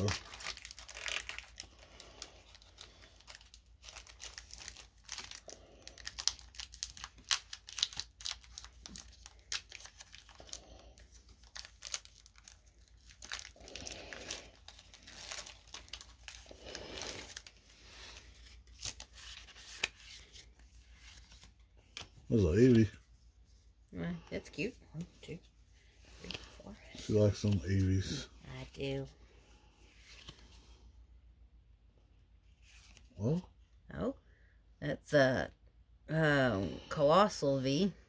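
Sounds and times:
foil wrapper crinkling and tearing: 0:00.0 - 0:22.9.

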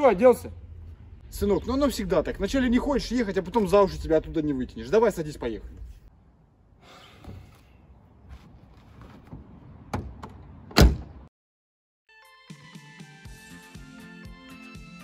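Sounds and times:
car door slamming: 0:09.0 - 0:11.3
music: 0:12.1 - 0:15.0.

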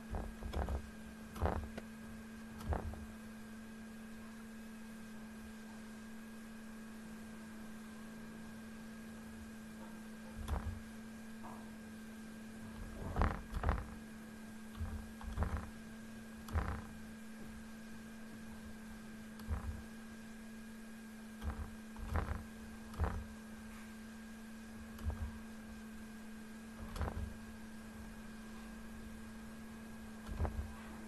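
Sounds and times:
electrical hum: 0:00.0 - 0:31.0
computer mouse clicking: 0:14.8 - 0:15.7, 0:24.9 - 0:25.4, 0:26.8 - 0:27.3.

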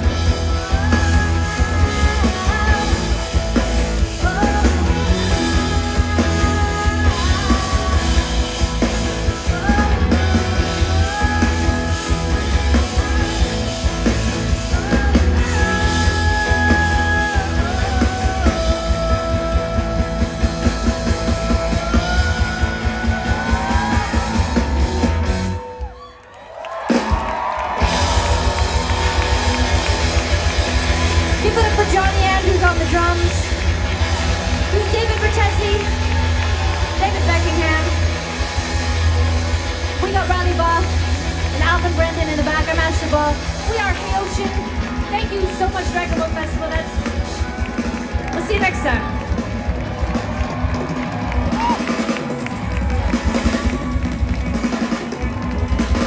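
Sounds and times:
person singing: 0:00.0 - 0:25.2
heavy drums: 0:00.0 - 0:26.0, 0:26.6 - 0:56.0
bass: 0:00.0 - 0:56.0
live rock band: 0:00.0 - 0:56.0.

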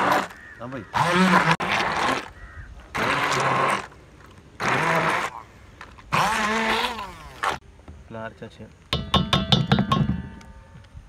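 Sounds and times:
immersion blender grinding: 0:01.0 - 0:02.3, 0:02.9 - 0:04.0, 0:04.6 - 0:05.4, 0:06.1 - 0:07.6.

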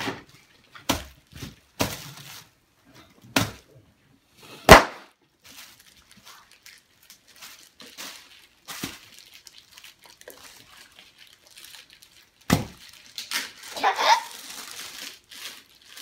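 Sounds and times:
plastic packaging crinkling: 0:05.2 - 0:16.0.

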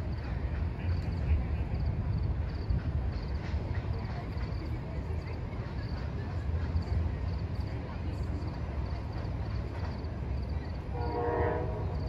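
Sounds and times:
crickets chirping: 0:08.4 - 0:12.0.

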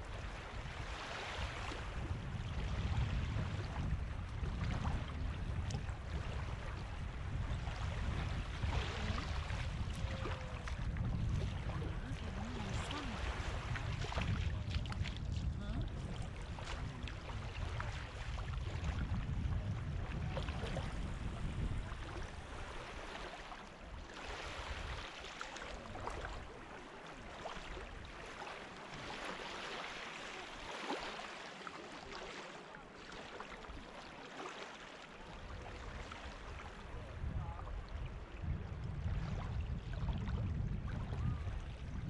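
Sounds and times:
small waves lapping on sand: 0:00.0 - 0:42.0.

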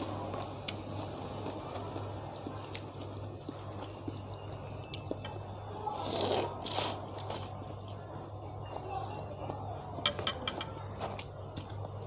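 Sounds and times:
quiet chewing: 0:00.0 - 0:05.4
wet noodle slurps: 0:06.0 - 0:07.5.

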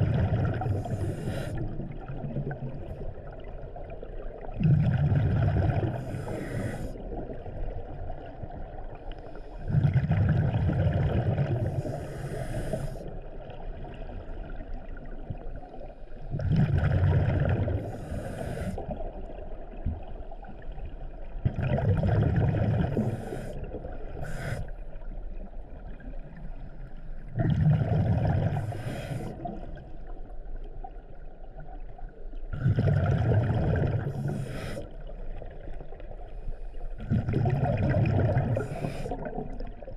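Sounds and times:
exhaled bubbles rumbling underwater: 0:00.0 - 0:39.9
regulator inhale hiss: 0:00.7 - 0:01.6, 0:06.0 - 0:07.0, 0:11.6 - 0:13.1, 0:17.8 - 0:18.9, 0:23.0 - 0:24.8, 0:28.6 - 0:29.5, 0:34.1 - 0:35.0, 0:38.5 - 0:39.3.

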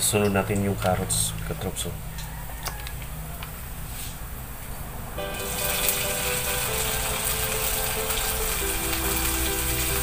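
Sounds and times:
onion sizzling in hot oil: 0:05.2 - 0:10.0.

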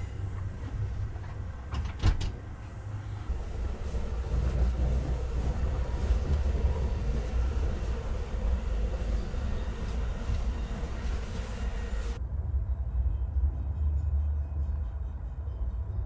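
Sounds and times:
train car rumble: 0:00.0 - 0:12.2.

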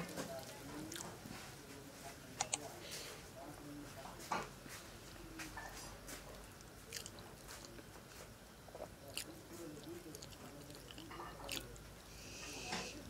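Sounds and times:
chewing and mouth smacks: 0:06.1 - 0:07.8, 0:08.7 - 0:11.8.

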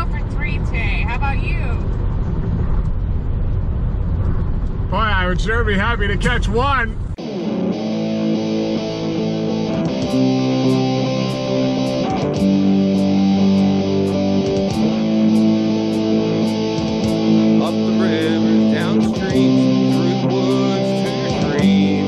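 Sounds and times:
guitar playing held chords: 0:07.2 - 0:22.0.

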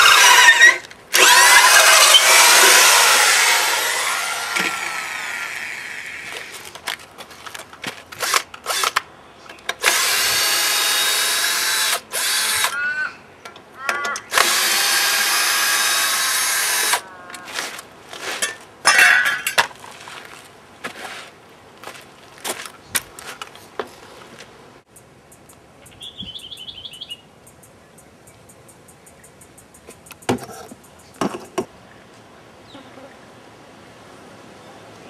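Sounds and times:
cordless drill drilling into log: 0:00.0 - 0:06.5, 0:09.8 - 0:12.7, 0:14.3 - 0:17.0.

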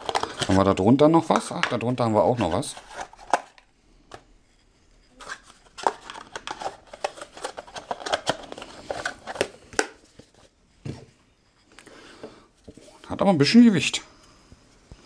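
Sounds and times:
cardboard and plastic packaging rustling: 0:00.0 - 0:04.2, 0:05.1 - 0:11.2.

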